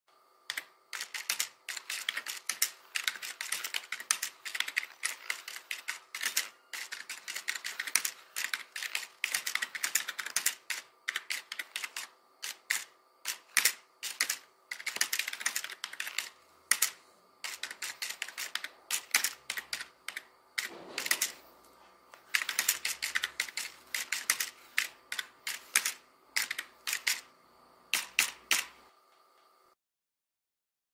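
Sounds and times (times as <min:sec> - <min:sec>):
keyboard typing: 0:00.5 - 0:21.5, 0:22.1 - 0:27.3, 0:27.9 - 0:28.8.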